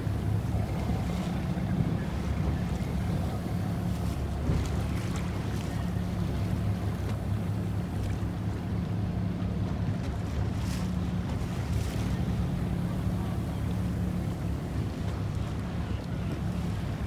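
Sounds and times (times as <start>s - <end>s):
small boat engine droning: 0.0s - 17.0s
water noise: 0.0s - 17.0s
water splashing surges: 0.0s - 17.0s.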